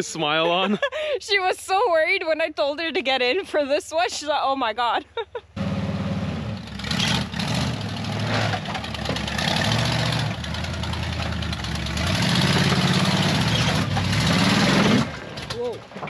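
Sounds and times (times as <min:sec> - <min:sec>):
off-road vehicle engine revving: 0:05.6 - 0:15.6.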